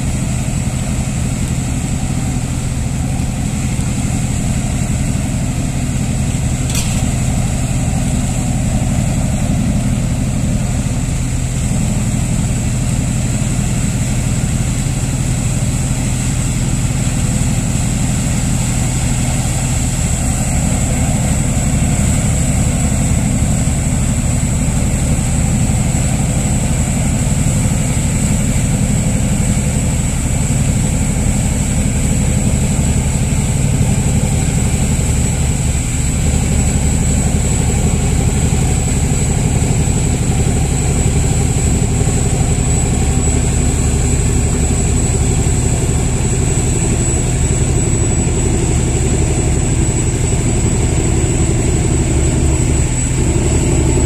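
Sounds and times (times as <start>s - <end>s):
motor humming and whining: 16.4s - 54.0s.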